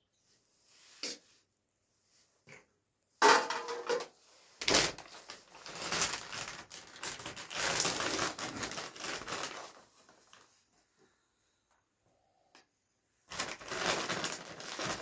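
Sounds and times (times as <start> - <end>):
plastic packet crinkling: 4.6 - 10.5, 13.3 - 15.0.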